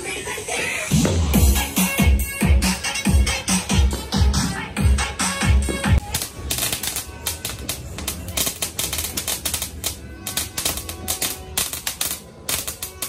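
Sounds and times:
dance music with thumping beat: 0.8 - 6.0
firework crackling and popping: 5.6 - 13.0.

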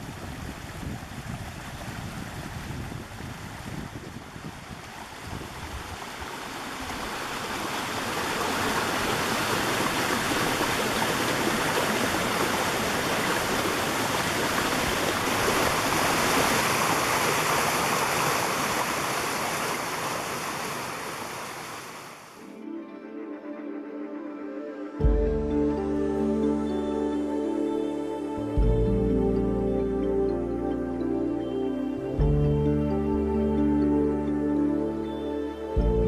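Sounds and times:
stream flowing over rocks: 0.0 - 22.5.

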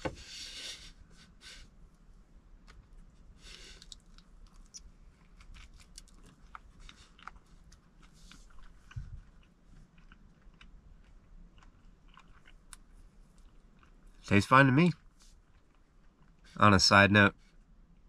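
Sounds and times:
biting and chewing crunchy toast: 2.6 - 14.3, 14.9 - 16.5.

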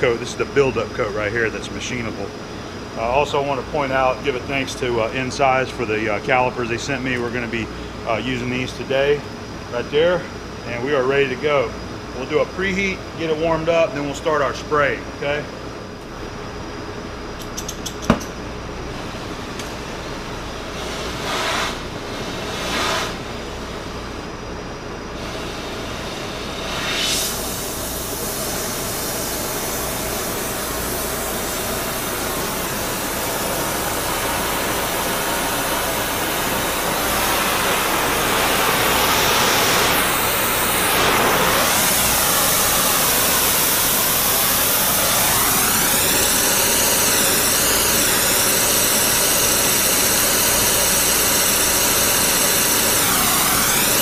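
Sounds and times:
welding torch flame hissing: 17.3 - 54.0.

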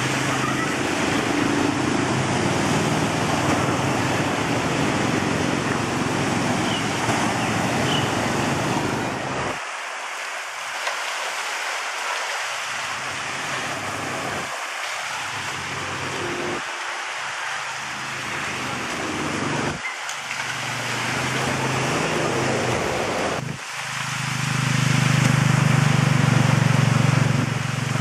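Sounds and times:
steady rushing hiss: 0.0 - 28.0
water splashing: 0.0 - 28.0.

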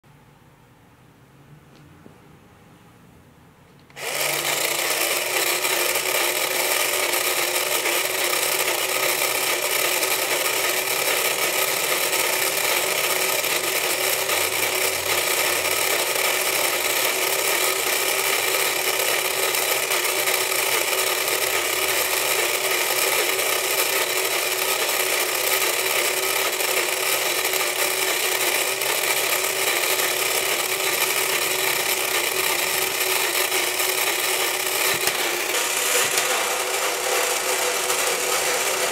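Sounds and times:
toy motor whirring: 3.9 - 38.9.

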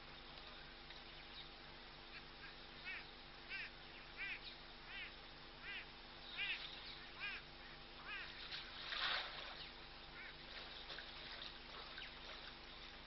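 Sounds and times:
background hiss: 0.0 - 13.0
animal calling: 2.1 - 8.4.

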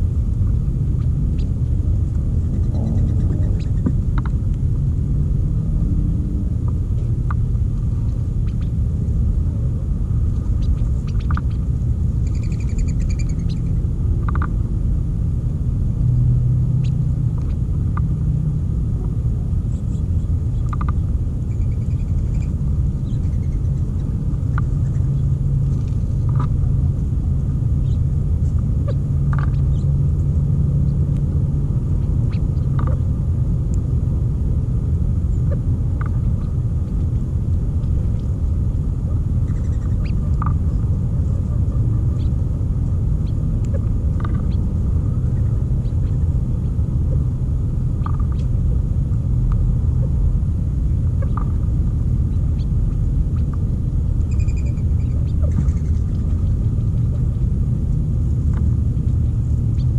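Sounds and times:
steady low rumble: 0.0 - 59.9
bird chirps: 2.4 - 3.9, 12.2 - 14.5, 19.7 - 25.3, 39.4 - 42.4, 54.2 - 56.4.

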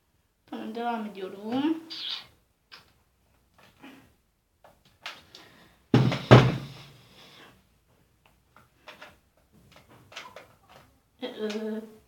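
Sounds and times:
loud thumps: 5.9 - 6.8.

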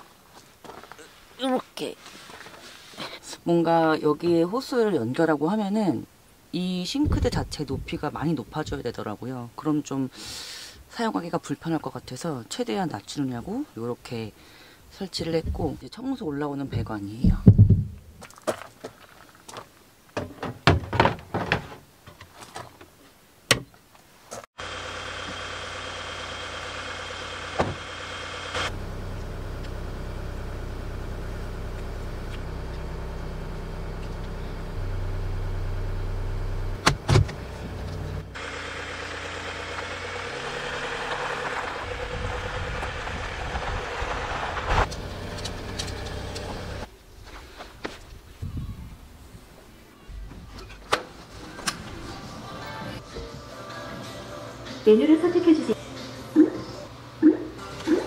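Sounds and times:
van driving rumble: 24.6 - 46.9.

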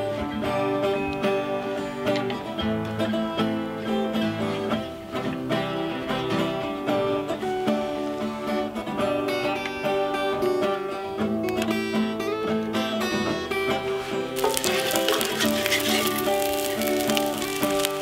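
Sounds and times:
acoustic guitar playing: 0.0 - 14.4.

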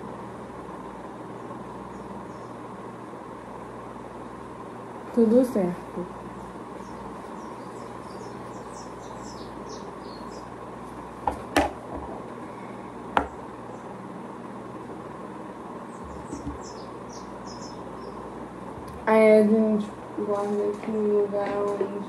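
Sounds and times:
ceiling fan whirring: 0.0 - 22.0
faint high chirps: 15.9 - 18.2.

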